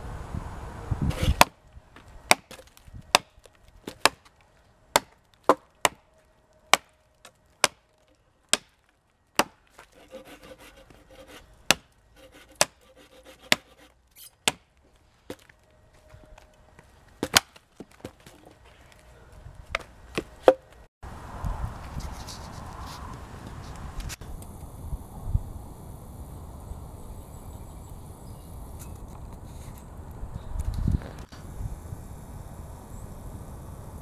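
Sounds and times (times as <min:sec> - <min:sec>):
wind noise on microphone: 0:00.0 - 0:02.0, 0:02.8 - 0:03.2, 0:19.3 - 0:19.8, 0:21.0 - 0:34.0
hatchet chopping dry branch: 0:01.1 - 0:06.1, 0:06.7 - 0:15.5, 0:17.2 - 0:18.4.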